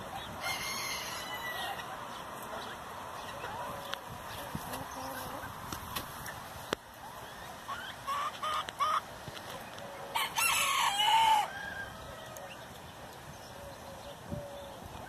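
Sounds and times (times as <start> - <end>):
chickens clucking: 0.0 - 11.5
rooster crowing: 0.4 - 1.8, 10.1 - 12.5.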